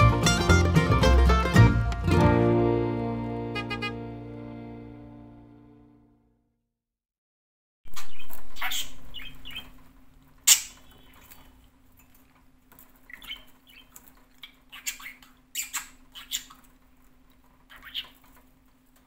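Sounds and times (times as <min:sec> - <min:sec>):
budgerigar chirping: 0:07.9 - 0:09.8, 0:10.5 - 0:11.2, 0:13.1 - 0:16.6, 0:17.7 - 0:18.2.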